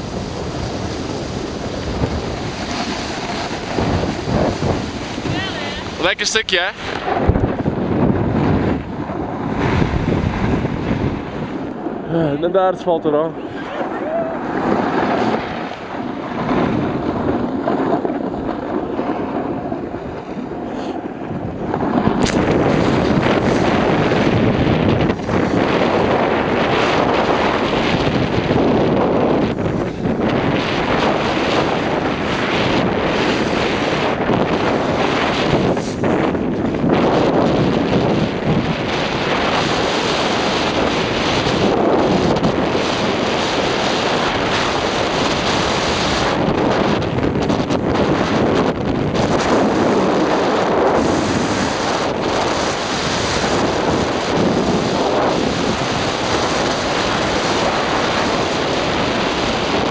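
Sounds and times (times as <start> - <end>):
wind rushing over microphone: 0.0 - 59.9
skis hissing on snow: 0.4 - 6.9
sharp scrape on snow: 2.2 - 5.9, 34.6 - 36.3.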